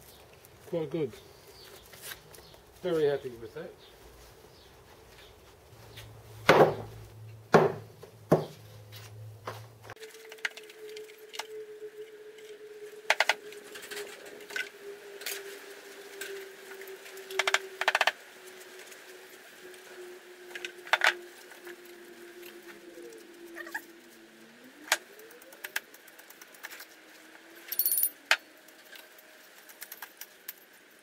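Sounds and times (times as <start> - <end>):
quick rattling clinks: 27.7 - 28.2.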